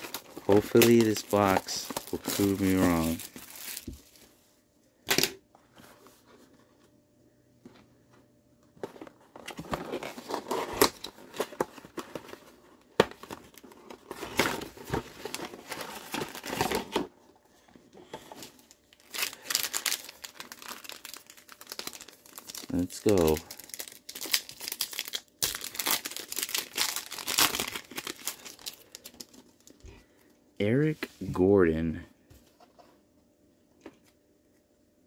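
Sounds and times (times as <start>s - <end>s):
plastic wrapping crinkling and tearing: 0.0s - 4.2s, 13.2s - 17.0s, 18.4s - 29.8s.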